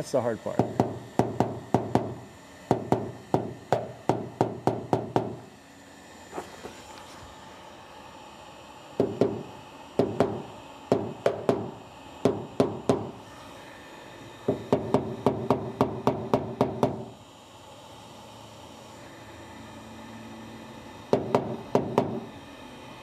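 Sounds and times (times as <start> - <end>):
hammer tapping on metal tool: 10.0 - 13.1.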